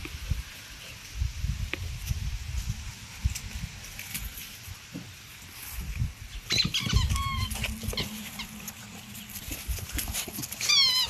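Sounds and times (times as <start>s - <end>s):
puppies yelping and whining: 6.4s - 11.0s.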